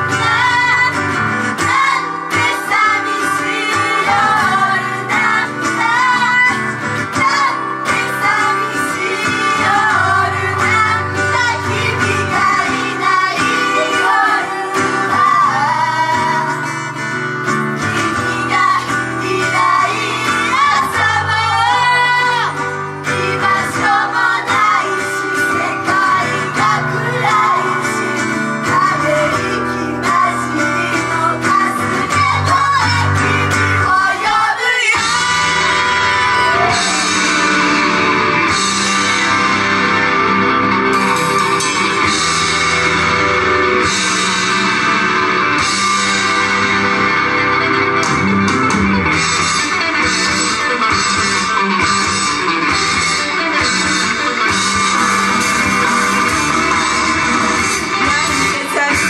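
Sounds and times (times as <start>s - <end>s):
women singing: 0.0s - 17.0s, 17.8s - 37.7s, 57.6s - 59.0s
loud backing music with guitar: 0.0s - 59.0s.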